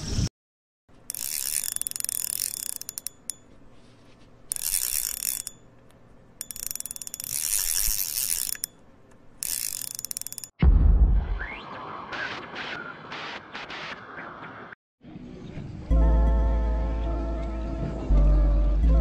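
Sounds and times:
fishing reel drag clicking: 1.0s - 3.6s, 4.5s - 10.6s.

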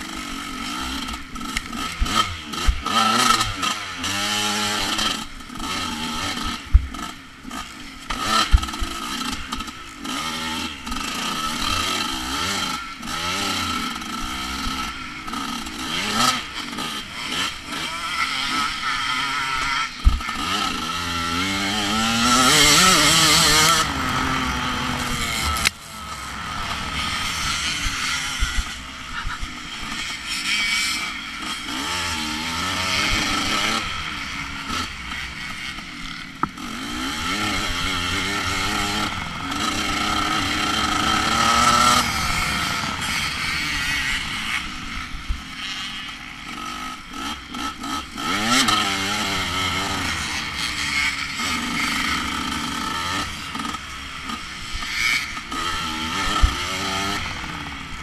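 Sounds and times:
dirt bike engine revving: 0.0s - 58.0s
loud rush of noise: 23.4s - 29.9s.

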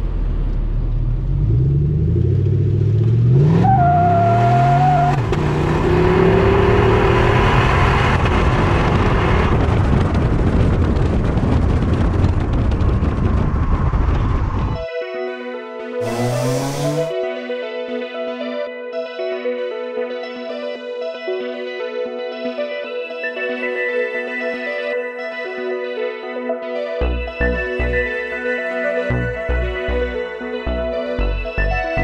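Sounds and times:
car engine accelerating: 0.0s - 10.1s, 16.0s - 17.1s
road and wind noise: 0.0s - 14.8s, 16.0s - 17.1s.

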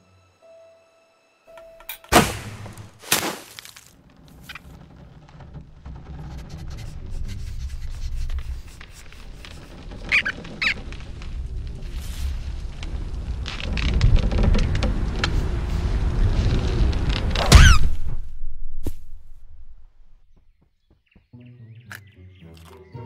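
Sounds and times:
low rumbling noise: 4.0s - 20.4s
short high squeaks: 6.3s - 11.0s, 17.4s - 18.0s
sharp cartoon whooshes: 17.4s - 18.2s.

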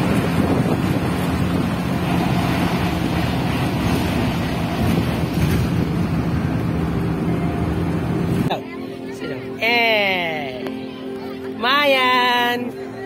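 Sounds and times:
wind rushing over microphone: 0.0s - 8.5s
engine and road noise: 0.0s - 13.0s.

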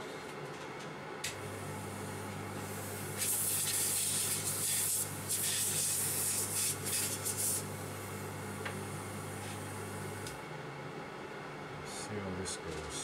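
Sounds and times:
low electrical hum: 0.0s - 13.0s
high hissing bursts: 2.7s - 7.8s.

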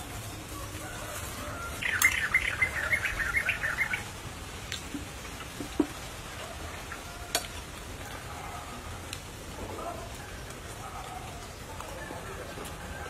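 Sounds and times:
bird chirping: 1.5s - 6.0s.

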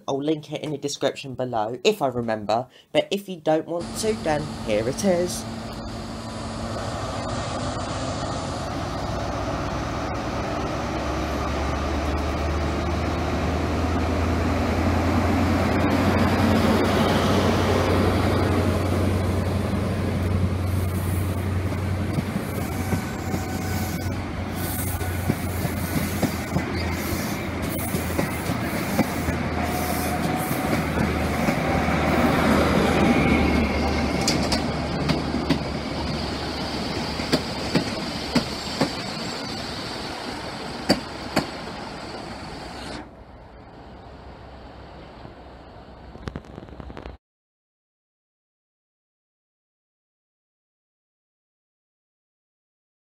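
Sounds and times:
diesel train engine droning: 3.8s - 46.3s
train wheels clicking over rail joints: 20.8s - 23.9s, 24.5s - 39.7s, 40.6s - 43.0s.

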